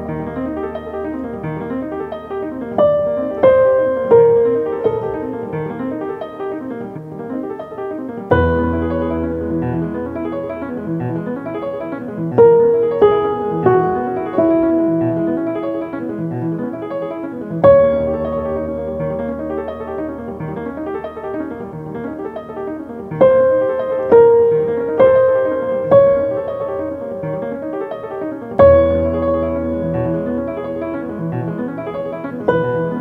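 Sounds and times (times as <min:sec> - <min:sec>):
slow piano music: 0:00.0 - 0:33.0.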